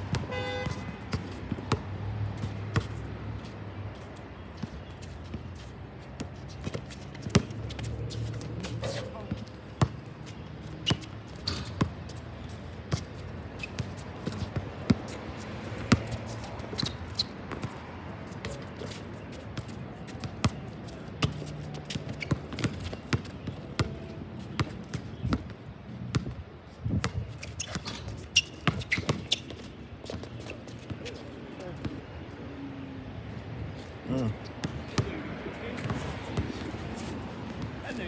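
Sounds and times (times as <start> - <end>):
basketball bouncing on hard court: 0.1 - 2.9, 6.6 - 7.9, 9.3 - 10.0, 21.2 - 25.5, 26.1 - 26.4, 27.0 - 29.6.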